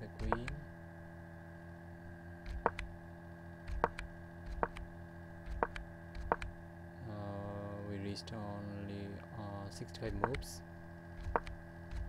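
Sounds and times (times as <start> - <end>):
steady electrical hum: 0.0 - 12.0
computer mouse clicks: 0.2 - 0.6, 2.4 - 2.9, 3.7 - 6.5, 10.0 - 10.4, 11.2 - 12.0.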